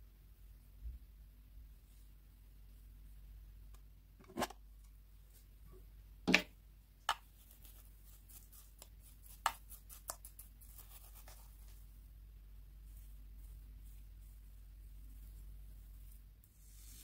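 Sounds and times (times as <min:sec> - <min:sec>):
spoon scooping glitter flakes: 0:07.1 - 0:12.1, 0:12.7 - 0:17.0.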